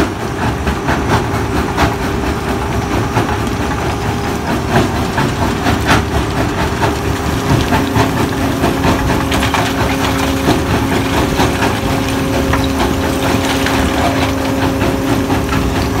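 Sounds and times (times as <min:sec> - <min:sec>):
stone crusher mechanical drone: 0:00.0 - 0:16.0
rock knocking and clattering: 0:04.7 - 0:16.0.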